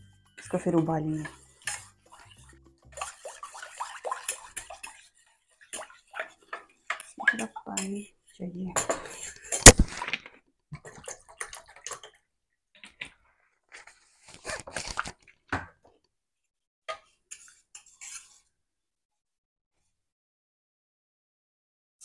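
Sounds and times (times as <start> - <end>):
water splashing and dripping: 1.5 - 7.8, 9.7 - 12.2.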